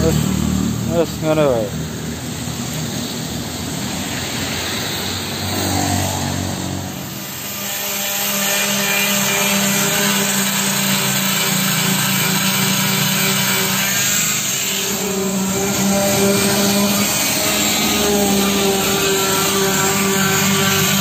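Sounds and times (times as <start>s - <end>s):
electric sander motor hum: 6.6s - 21.0s
sandpaper rasping on metal: 7.5s - 21.0s.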